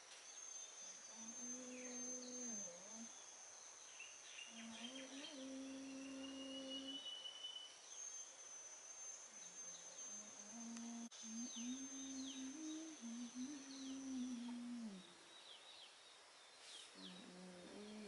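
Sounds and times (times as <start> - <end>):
high insect drone: 0.0 - 18.0
birds chirping: 0.4 - 18.0
woman humming lullaby: 1.1 - 3.2, 4.5 - 7.1, 10.0 - 15.2, 17.0 - 18.0.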